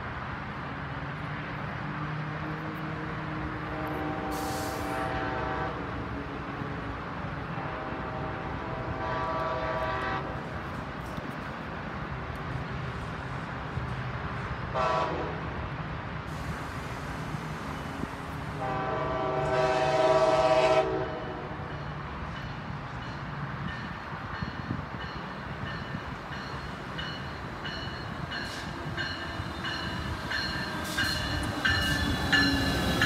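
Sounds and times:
low drone of approaching train: 0:00.0 - 0:33.0
train horn blasts: 0:03.6 - 0:06.1, 0:07.4 - 0:10.5, 0:14.7 - 0:15.5, 0:18.5 - 0:21.7.

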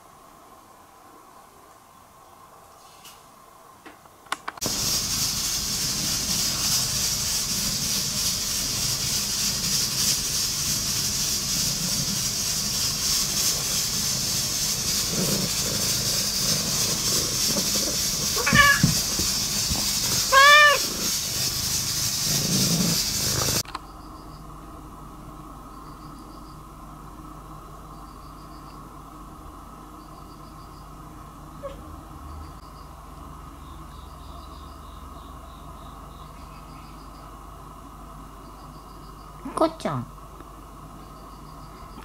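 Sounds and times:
fur rustling against microphone: 0:04.7 - 0:23.6
cat purring: 0:05.1 - 0:23.6
cat meowing: 0:18.3 - 0:19.1, 0:20.2 - 0:20.9.

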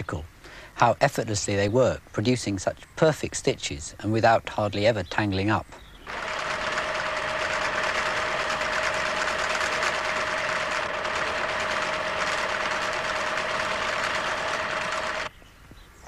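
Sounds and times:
sewing machine motor tone: 0:06.0 - 0:15.3
sewing machine needle clatter: 0:06.1 - 0:15.3.

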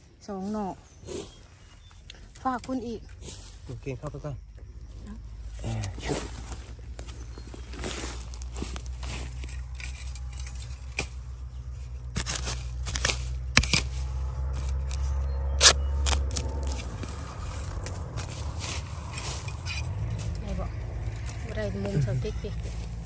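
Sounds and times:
low rumble: 0:00.0 - 0:23.0
crackling dry leaves: 0:00.3 - 0:23.0
blade chopping bamboo: 0:12.1 - 0:15.0, 0:15.6 - 0:16.9.

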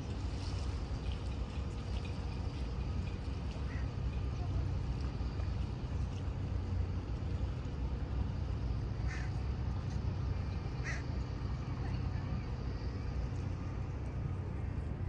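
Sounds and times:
low rumble: 0:11.4 - 0:15.0.

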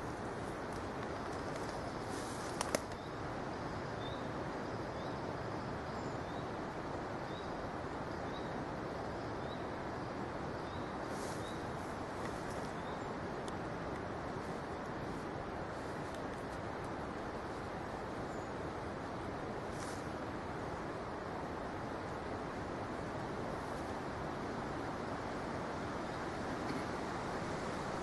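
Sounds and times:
background hiss: 0:00.0 - 0:28.0
sharp clicks: 0:02.6 - 0:03.0.

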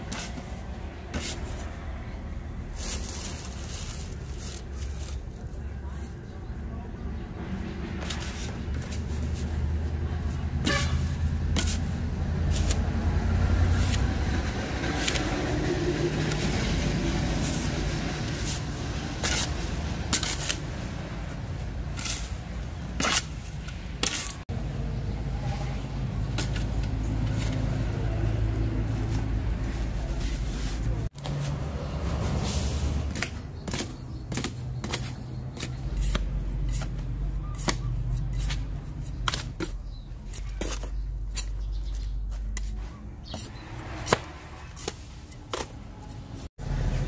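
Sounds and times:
shovel scraping in plastic tub: 0:10.6 - 0:12.8, 0:17.3 - 0:20.9.

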